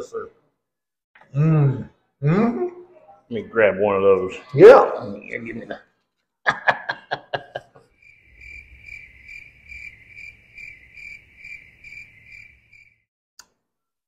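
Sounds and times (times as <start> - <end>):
crickets chirping: 6.6 - 13.0.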